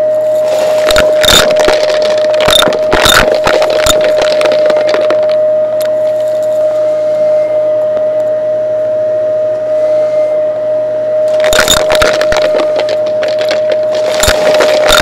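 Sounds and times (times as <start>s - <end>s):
vacuum cleaner motor whine: 4.2s - 14.5s
coins clinking through vacuum: 11.4s - 15.0s.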